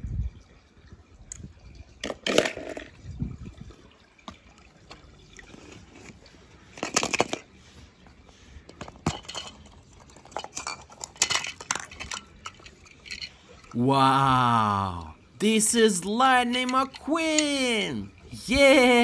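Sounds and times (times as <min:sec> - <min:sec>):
plastic toys clattering: 0:02.0 - 0:03.0, 0:04.8 - 0:07.6, 0:08.7 - 0:13.8, 0:16.4 - 0:17.5.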